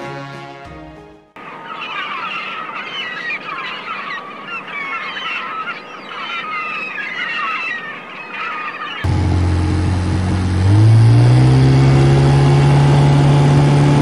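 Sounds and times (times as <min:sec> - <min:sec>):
gulls calling: 0:01.4 - 0:09.1.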